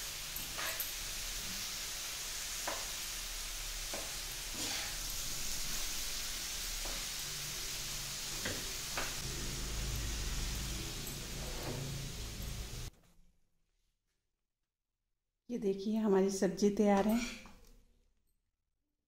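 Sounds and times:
vegetables sizzling in a pan: 0.0 - 12.9
spatula scraping a pan: 3.9 - 7.2
low rumble: 9.2 - 12.9.

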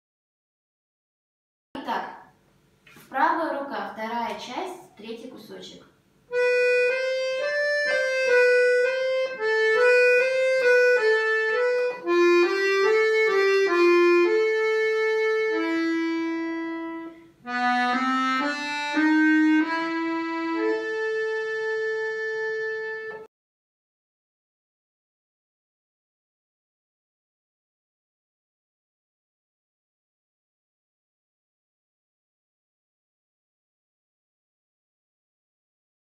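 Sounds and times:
button accordion waltz melody: 6.3 - 23.3.

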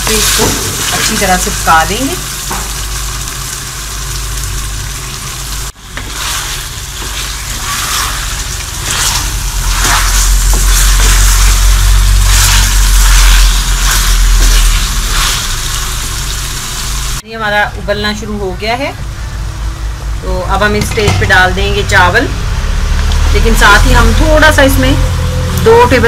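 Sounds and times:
chicken sizzling in pot: 0.0 - 17.2
wooden spoon scraping pot: 6.0 - 15.3
low hum: 6.6 - 26.0.

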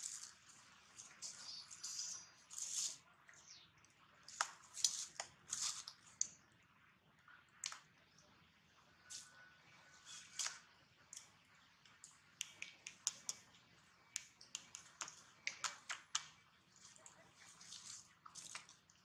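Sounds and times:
soft leaf rustling: 0.0 - 3.1, 4.2 - 6.3, 9.0 - 10.6, 14.6 - 19.0.

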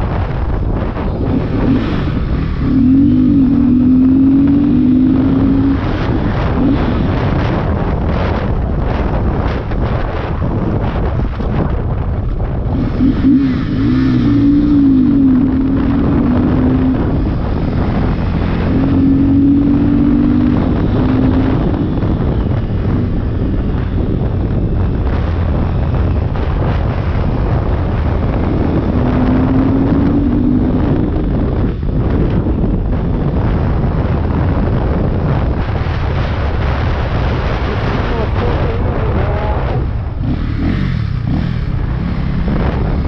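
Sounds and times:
motorcycle engine revving: 0.0 - 43.0
wind buffeting on microphone: 0.0 - 43.0.

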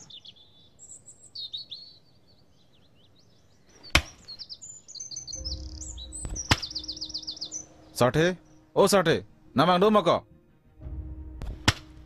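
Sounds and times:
birds chirping: 0.0 - 10.8.

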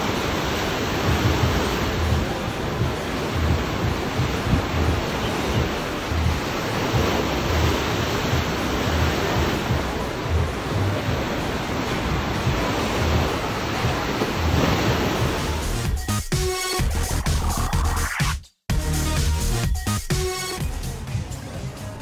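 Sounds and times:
wave breaking into whitewater: 0.0 - 15.8.

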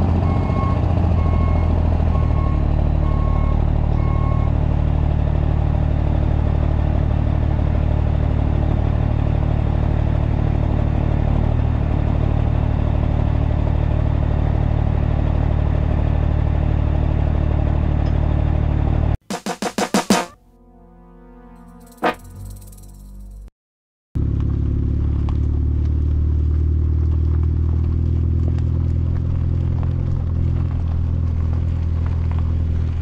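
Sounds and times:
diesel truck engine running: 0.0 - 19.2, 24.2 - 33.0
reversing alarm beeping: 0.2 - 4.5.

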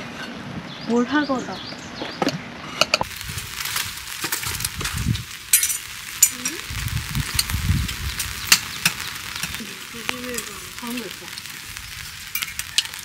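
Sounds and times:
food sizzling in a pan: 3.0 - 13.0
utensils clicking and clinking: 12.3 - 13.0.

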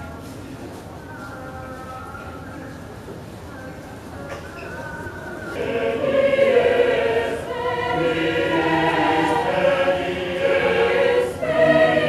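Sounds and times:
mixed choir singing in harmony: 5.4 - 12.0.

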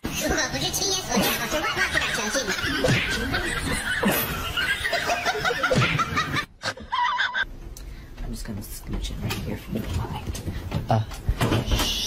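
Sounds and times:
person laughing: 1.2 - 7.4.

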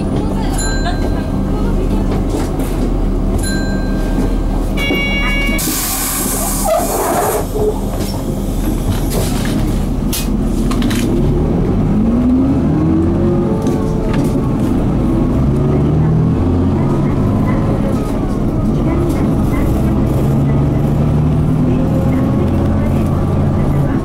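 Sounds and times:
bus diesel engine running: 0.0 - 24.0
brief high tone: 4.8 - 5.7.

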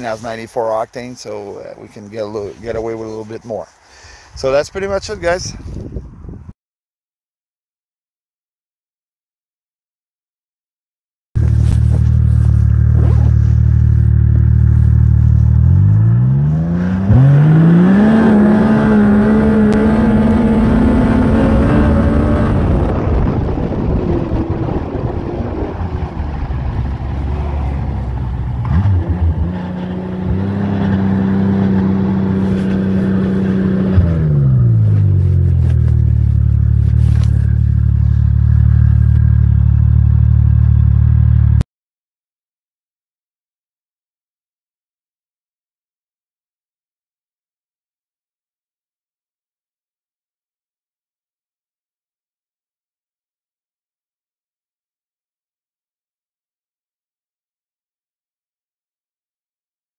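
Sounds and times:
snowmobile engine idling and revving: 11.4 - 41.6.

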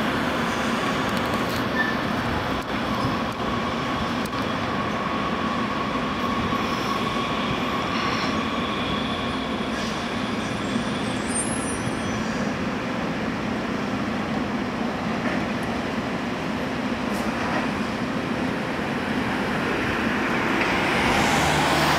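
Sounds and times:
light rail rolling rumble: 0.0 - 21.9
faint wheel squeal: 1.7 - 2.1, 6.4 - 12.6.

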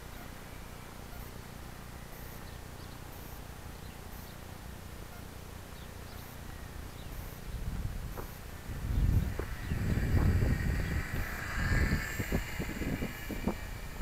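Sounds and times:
wind buffeting microphone: 7.4 - 14.0.

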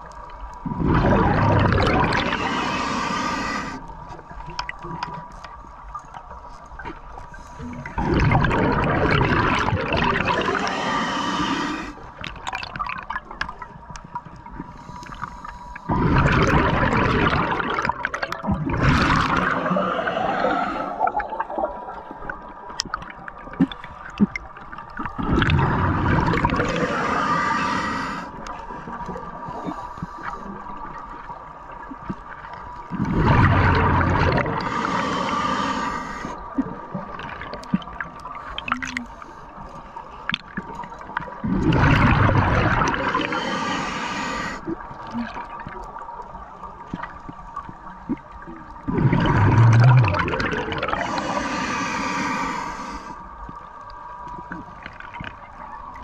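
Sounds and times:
underwater exhaled bubbles rushing: 0.0 - 15.0, 15.8 - 39.2, 40.1 - 56.0.

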